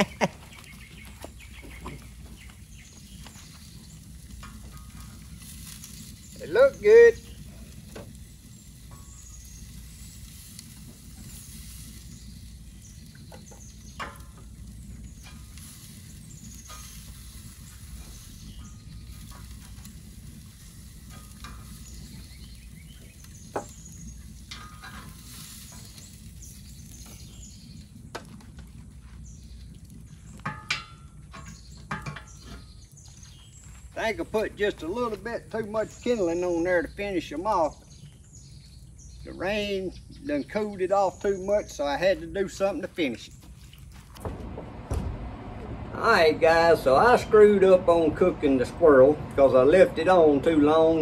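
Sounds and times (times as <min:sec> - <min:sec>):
steel door clanking shut: 0:44.2 - 0:47.5.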